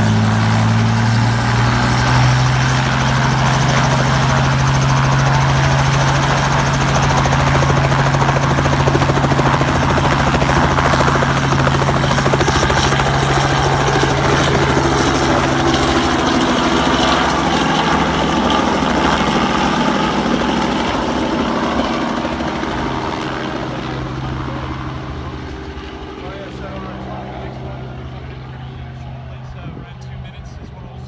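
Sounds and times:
helicopter engine and rotor drone: 0.0 - 31.0.

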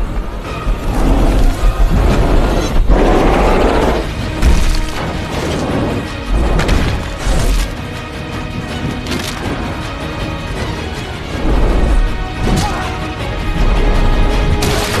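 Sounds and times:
dramatic soundtrack music: 0.0 - 15.0.

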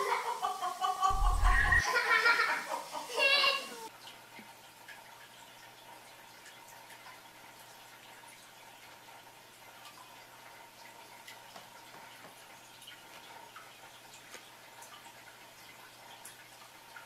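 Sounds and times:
steady hiss: 0.0 - 3.9
thin steady hum: 1.1 - 1.8.

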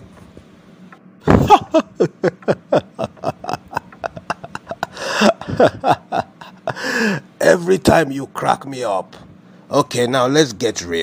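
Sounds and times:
man laughing hard: 1.2 - 7.3.

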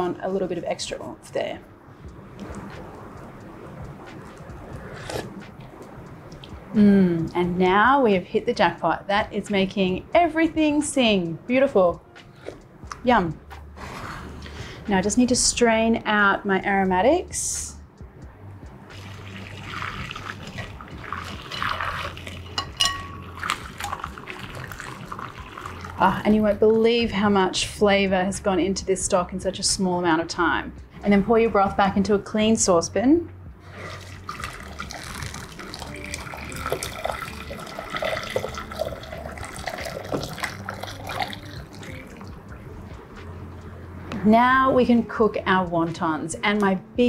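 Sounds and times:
liquid pouring into metal pan: 18.9 - 26.0, 34.0 - 42.2
broth trickling through a sieve: 18.9 - 26.8, 33.6 - 42.4.

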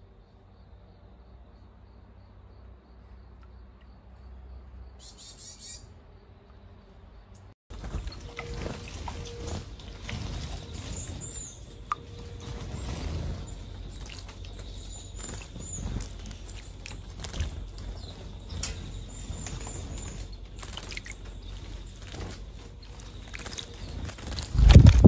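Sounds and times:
thin high bird chirps: 2.7 - 5.9, 7.8 - 25.0
bird wings fluttering in water: 7.7 - 25.0.

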